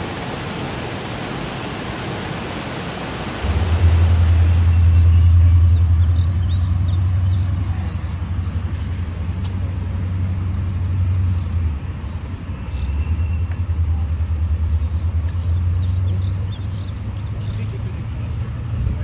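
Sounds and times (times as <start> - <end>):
steady low rumble: 0.0 - 12.2.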